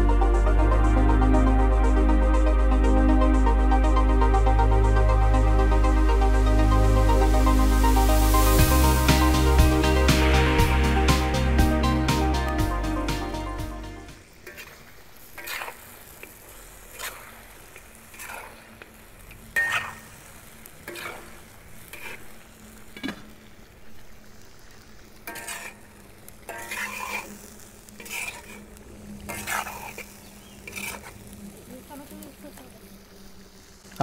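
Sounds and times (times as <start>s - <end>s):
meat sizzling in oil: 5.5s - 13.2s, 14.2s - 34.0s
metal spatula scraping a wok: 14.4s - 17.5s, 18.1s - 18.8s, 19.5s - 20.2s, 20.8s - 23.3s, 25.2s - 31.4s.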